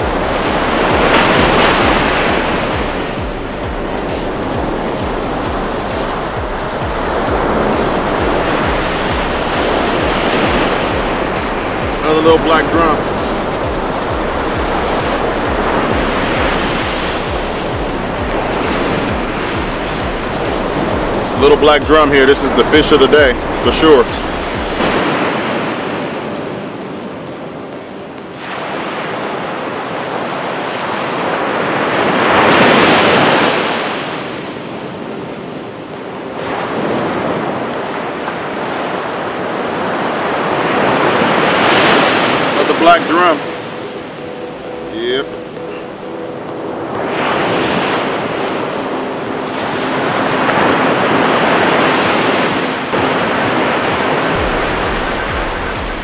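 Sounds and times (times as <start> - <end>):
ocean waves breaking on beach: 0.0 - 56.0
wave crashing: 0.0 - 56.0.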